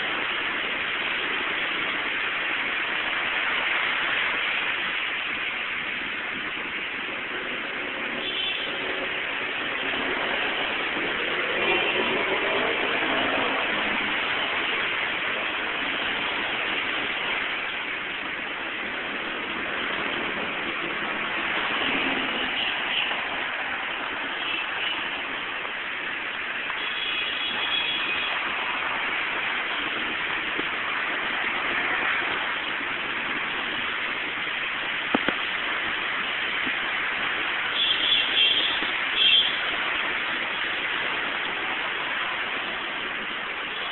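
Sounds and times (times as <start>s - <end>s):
heavy rain hissing: 0.0s - 43.9s
traffic on wet road: 0.0s - 43.9s.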